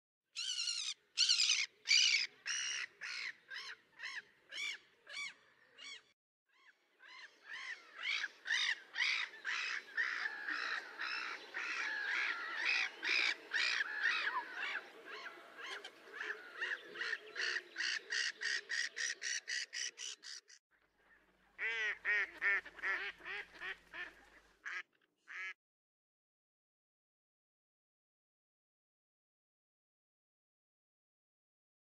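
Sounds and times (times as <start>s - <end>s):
waterbirds calling: 0.4s - 25.5s.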